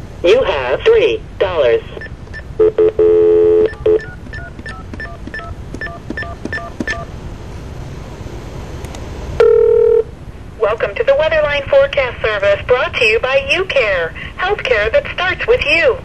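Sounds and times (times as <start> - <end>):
telephone line hiss: 1.9 - 7.1, 9.4 - 10.1
touch-tone dialing digits: 2.0 - 7.1
multi-note telephone tone: 2.6 - 7.1, 9.4 - 10.1.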